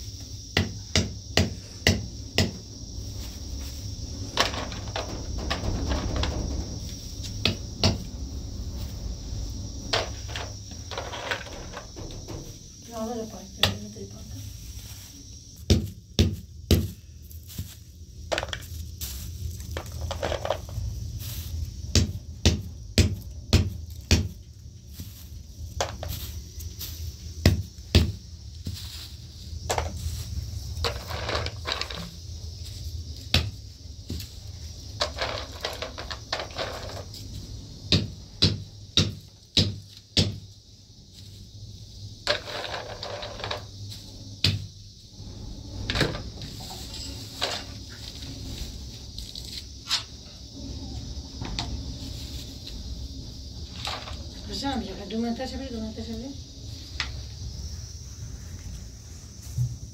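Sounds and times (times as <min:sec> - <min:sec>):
wooden stick pounding knocks: 0:00.5 - 0:02.6, 0:07.3 - 0:08.1, 0:15.7 - 0:17.0, 0:21.9 - 0:24.4, 0:27.4 - 0:28.2, 0:33.3 - 0:34.2, 0:37.9 - 0:40.4, 0:44.4 - 0:44.7.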